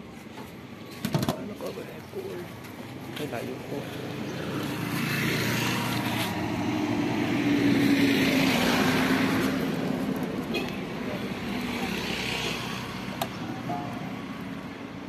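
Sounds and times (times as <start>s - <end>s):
vehicle engine passing: 3.3s - 14.6s.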